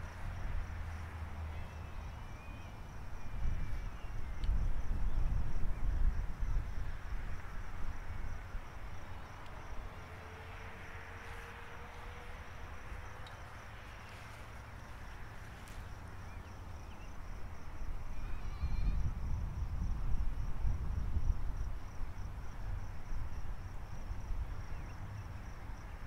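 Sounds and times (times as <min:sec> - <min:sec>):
wind buffeting microphone: 0:02.8 - 0:10.0, 0:16.0 - 0:24.9
high-pitched insect chirping: 0:18.1 - 0:19.1.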